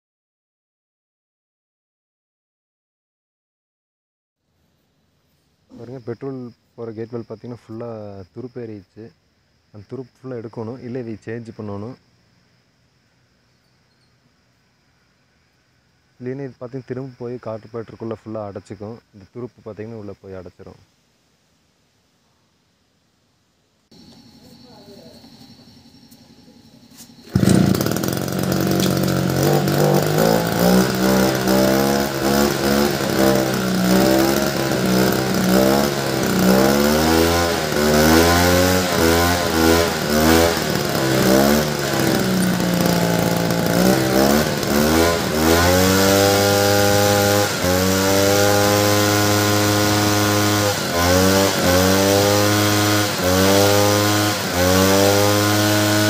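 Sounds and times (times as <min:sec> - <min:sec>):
small petrol engine running: 0:27.0 - 0:56.0
recoil starter pull: 0:27.1 - 0:56.0.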